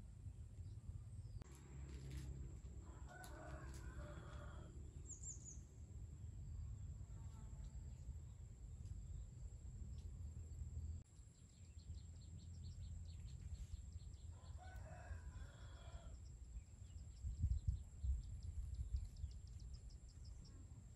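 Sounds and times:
rooster crowing: 2.8 - 4.8, 14.3 - 16.2.

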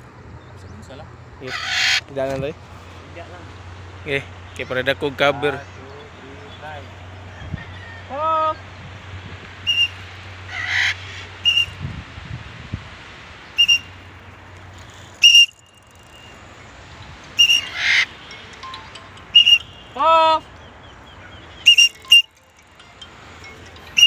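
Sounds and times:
rising parrot call: 1.4 - 2.1, 9.6 - 11.8, 13.6 - 14.0, 15.2 - 16.3, 17.4 - 20.5, 21.1 - 22.5
parrot screeches: 1.5 - 2.0, 10.5 - 11.7, 17.4 - 18.1
parrot whistle notes: 9.6 - 10.0, 11.4 - 11.8, 13.6 - 13.9, 15.2 - 16.3, 17.4 - 20.0, 21.6 - 22.5.

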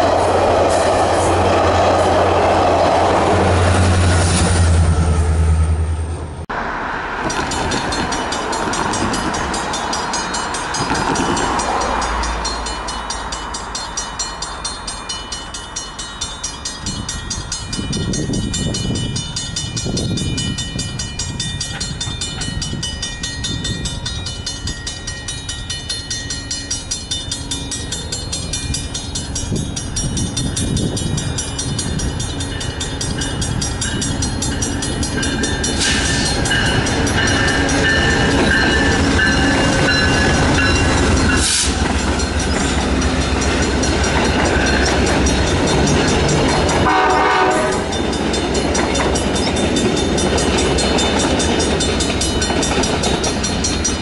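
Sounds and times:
locomotive approaching: 0.0 - 54.0
road traffic rumble: 0.0 - 54.0
level-crossing warning bells: 7.2 - 54.0
train horn: 46.8 - 48.0.

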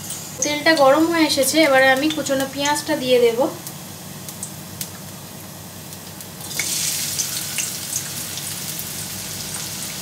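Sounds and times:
onion frying sizzle with pops: 0.0 - 10.0
hot oil hissing: 6.4 - 10.0.

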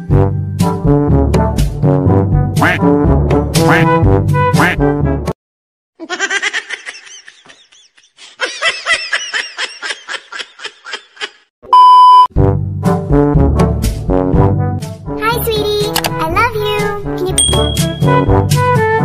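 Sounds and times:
brass background music: 0.0 - 5.4, 12.3 - 19.0
laughter sound effects: 6.0 - 11.5
censor beep: 11.7 - 12.3.

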